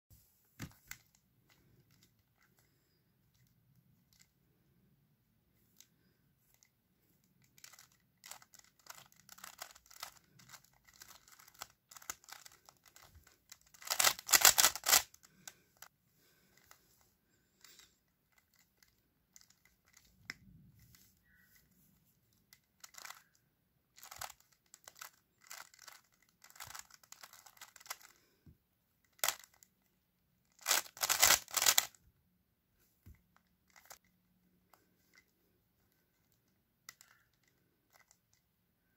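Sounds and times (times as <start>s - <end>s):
puzzle cube clicking turns: 5.7s - 15.9s, 17.6s - 21.4s, 22.4s - 28.4s, 29.0s - 29.8s, 30.5s - 32.0s, 33.4s - 34.1s, 36.0s - 38.4s.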